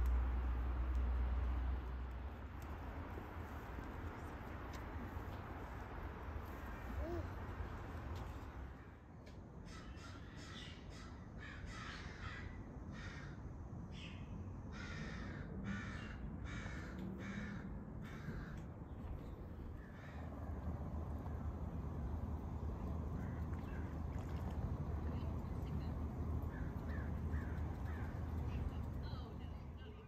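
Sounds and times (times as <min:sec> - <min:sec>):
steady low rumble: 0:00.0 - 0:09.1, 0:15.4 - 0:30.0
bird cawing: 0:09.7 - 0:13.4, 0:14.7 - 0:18.6, 0:19.8 - 0:20.5, 0:23.1 - 0:24.0, 0:26.4 - 0:28.4.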